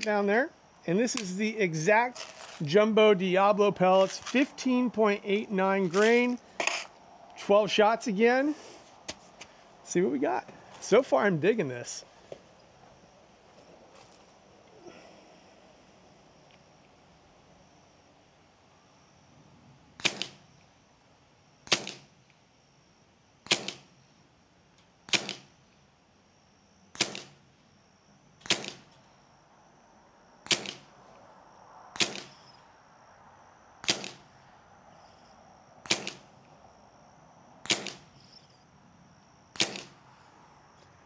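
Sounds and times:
air pistol shots: 20.0s - 20.4s, 21.6s - 22.1s, 23.4s - 23.9s, 25.1s - 25.5s, 26.9s - 27.4s, 28.4s - 28.9s, 30.4s - 30.9s, 32.0s - 32.4s, 33.8s - 34.2s, 35.8s - 36.3s, 37.6s - 38.1s, 39.5s - 40.0s.

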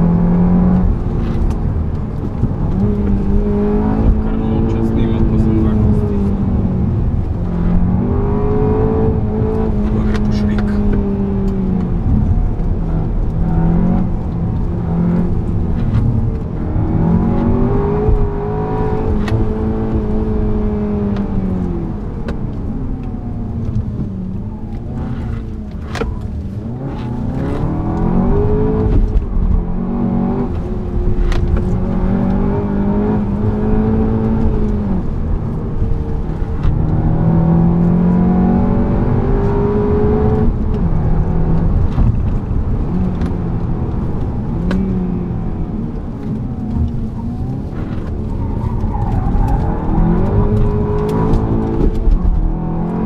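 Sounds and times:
car engine revving: 0.0s - 53.0s.

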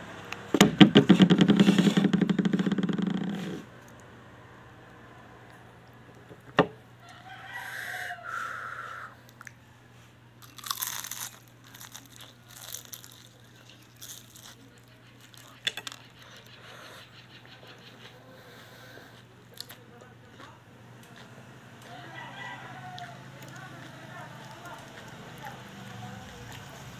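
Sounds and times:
crunchy biting and chewing: 10.4s - 16.5s.

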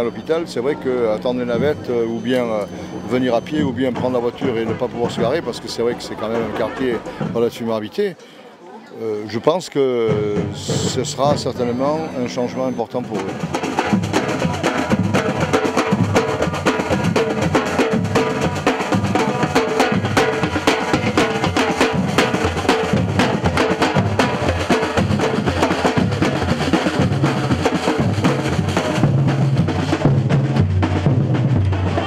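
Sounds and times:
snare drums: 1.3s - 7.6s, 10.0s - 32.0s
bass drums: 13.0s - 32.0s.

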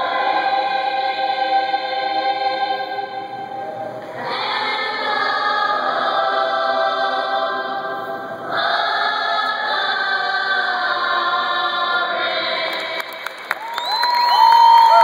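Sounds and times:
youth choir singing held chords: 0.0s - 13.5s.

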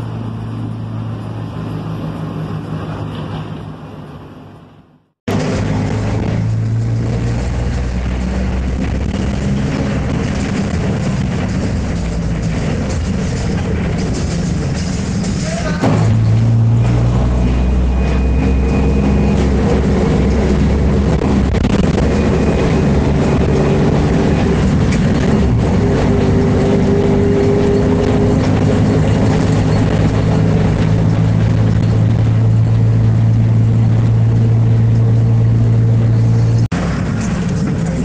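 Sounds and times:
bus diesel engine droning: 0.0s - 38.0s.

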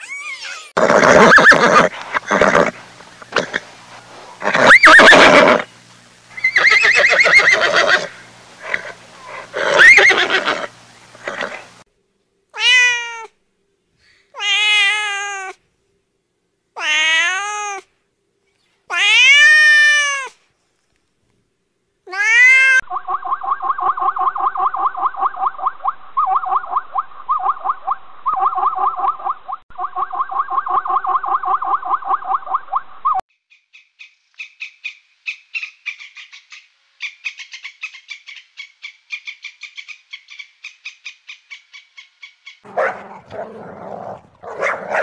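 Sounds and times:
horse whinnying: 0.8s - 3.6s, 4.4s - 5.7s, 6.4s - 11.7s
cat meowing: 12.6s - 13.3s, 14.4s - 15.6s, 18.9s - 20.3s, 22.1s - 22.8s
rapid pulsed animal calls: 22.9s - 42.6s.

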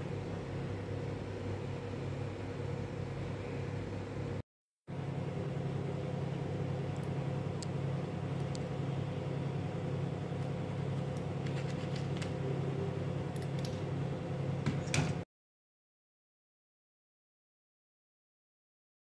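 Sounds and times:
low machine hum: 0.0s - 15.2s.

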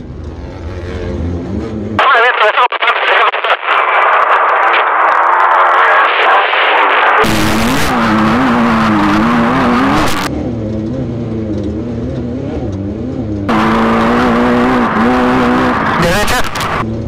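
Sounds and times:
race car engine revving: 4.7s - 17.0s
tyre and chassis noise: 6.5s - 17.0s.

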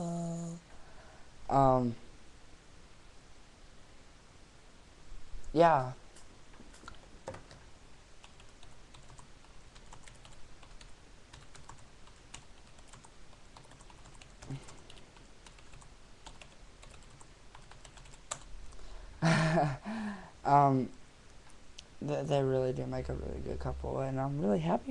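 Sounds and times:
computer keyboard typing: 8.2s - 18.5s.

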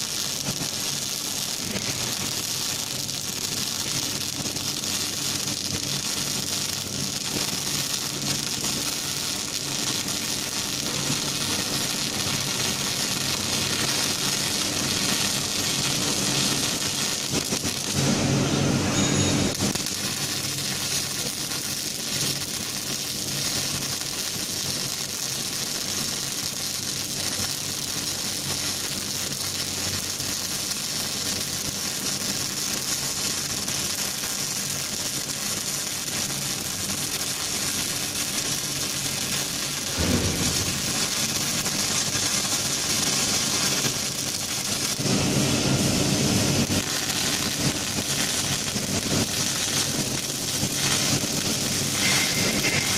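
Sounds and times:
welding arc crackling and hissing: 0.0s - 52.9s.

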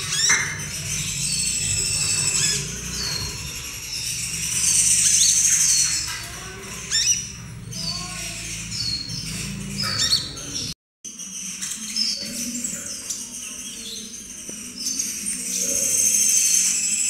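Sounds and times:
bird whistling and chirping: 0.0s - 6.2s.

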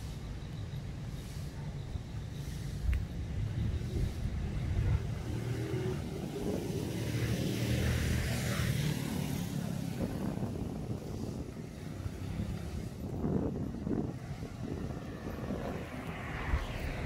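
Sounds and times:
road traffic rumble: 0.0s - 17.0s
vehicle passing by: 3.8s - 17.0s.

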